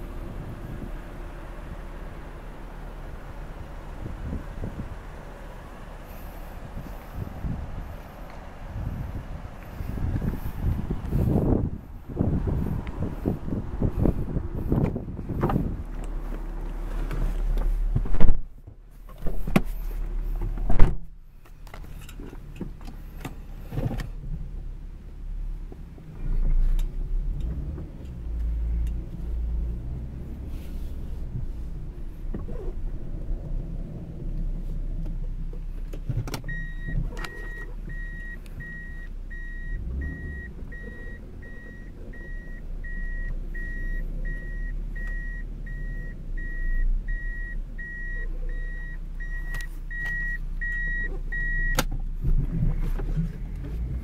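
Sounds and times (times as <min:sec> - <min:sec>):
low steady rumble: 0:00.0 - 0:54.0
car warning chime beeping: 0:36.5 - 0:51.9.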